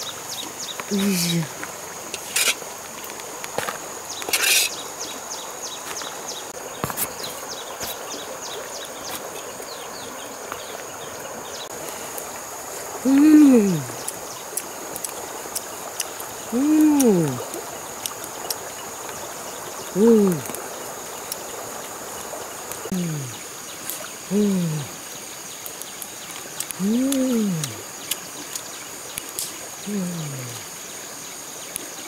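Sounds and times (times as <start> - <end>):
faint river rushing: 0.0 - 32.0
high insect drone: 0.0 - 32.0
short scrape: 2.2 - 2.6, 4.3 - 4.8.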